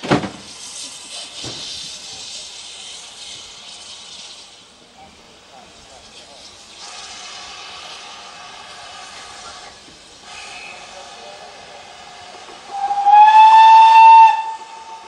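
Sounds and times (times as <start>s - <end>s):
train rolling and hissing: 0.0s - 15.0s
steam locomotive whistle: 12.6s - 15.0s.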